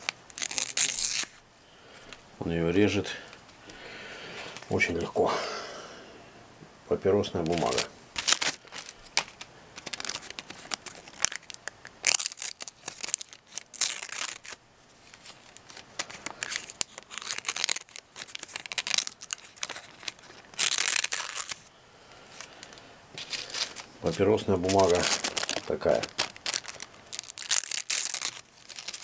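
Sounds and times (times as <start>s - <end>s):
paper rustling and crinkling: 7.4s - 29.0s.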